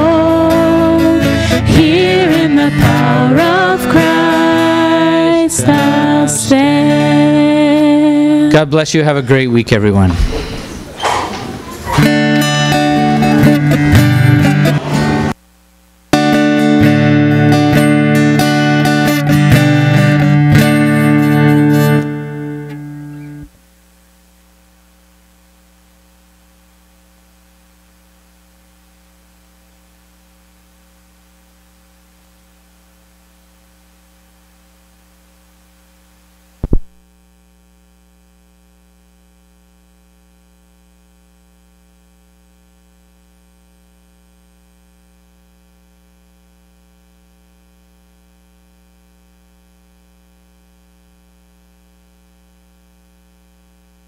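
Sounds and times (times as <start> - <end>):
acoustic guitar music: 0.0 - 9.4, 11.9 - 15.4, 16.1 - 23.5
electrical mains hum: 0.0 - 54.0
loud pop: 36.6 - 37.0.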